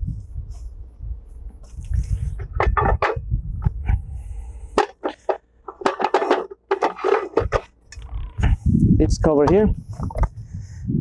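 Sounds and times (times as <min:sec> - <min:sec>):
metal clanks and scrapes: 0:02.3 - 0:03.3, 0:04.7 - 0:08.6.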